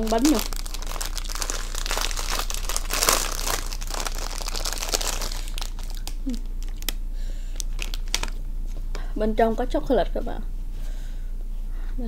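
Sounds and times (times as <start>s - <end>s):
plastic wrapper crinkling: 0.0s - 8.4s.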